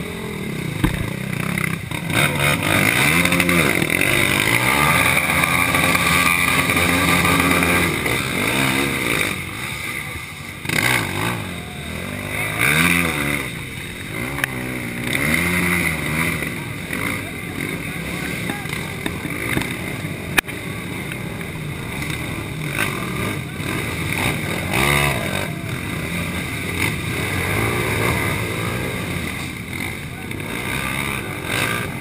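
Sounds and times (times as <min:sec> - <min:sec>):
quad engines revving: 0:00.0 - 0:32.0
sharp knock: 0:00.8 - 0:01.2.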